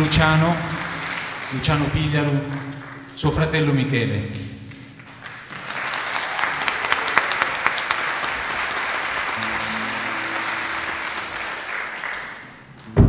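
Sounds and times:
audience applauding: 0.0 - 3.3, 4.8 - 13.0
low instrumental notes: 9.4 - 13.0.

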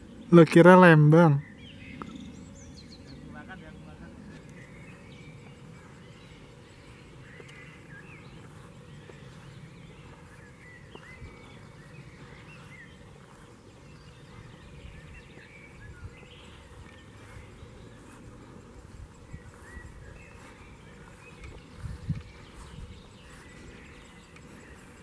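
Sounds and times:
birds chirping and whistling: 0.0 - 25.0.

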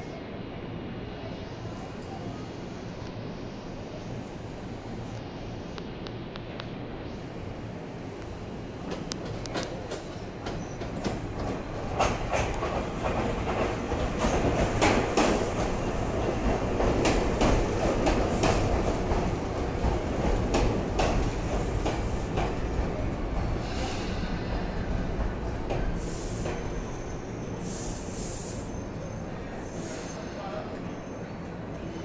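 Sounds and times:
train wheels rumbling: 8.6 - 32.0.

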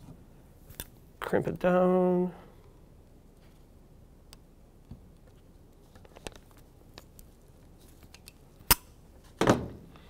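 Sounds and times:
small clicks of wires handled: 5.1 - 8.9.

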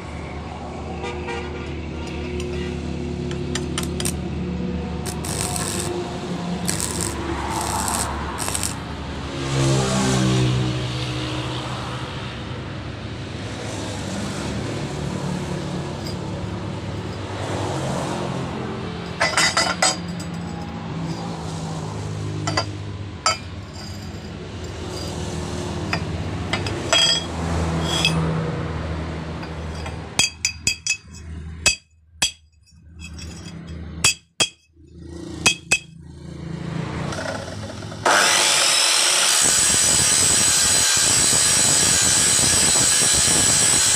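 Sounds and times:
chop saw running: 5.1 - 6.0, 6.6 - 8.9, 37.1 - 43.9
steel pipe clinking on metal: 19.1 - 21.3, 22.4 - 25.2, 25.9 - 28.2, 29.4 - 34.7, 35.4 - 36.0.

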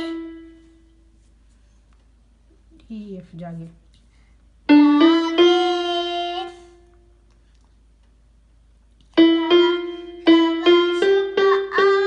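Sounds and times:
electronic keyboard notes: 0.0 - 0.7, 4.7 - 7.0, 9.2 - 12.0.

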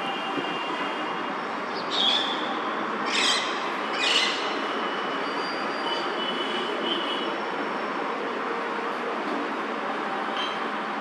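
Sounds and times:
parakeet harsh calls: 1.9 - 2.4, 3.0 - 4.6.

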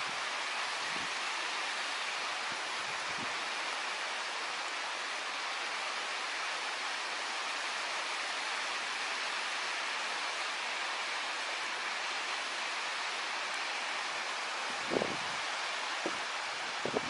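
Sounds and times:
steady rushing noise: 12.8 - 17.0.

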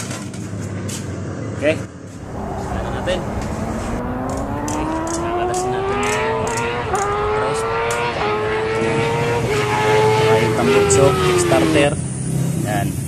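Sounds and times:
racing engine accelerating: 2.1 - 11.8.

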